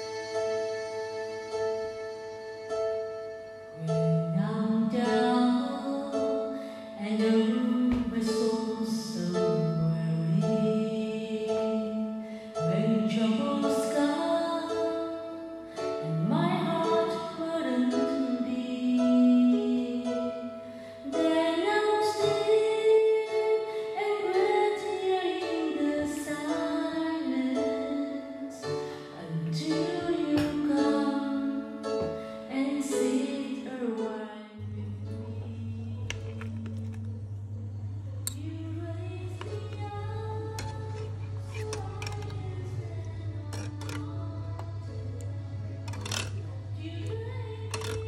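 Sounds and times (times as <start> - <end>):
woman singing song with instruments: 3.8 - 37.2, 38.2 - 48.0
low steady hum: 34.6 - 48.0.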